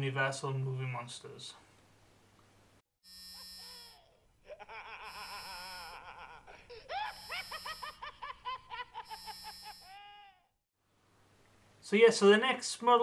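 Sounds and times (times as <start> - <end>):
maniacal cackling laugh: 3.4 - 10.5.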